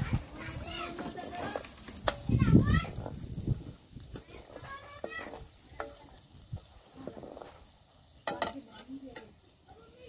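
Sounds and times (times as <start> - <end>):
masala sizzling in oil: 0.0 - 10.0
ladle clinking and scraping pan: 0.8 - 3.2, 4.1 - 9.4.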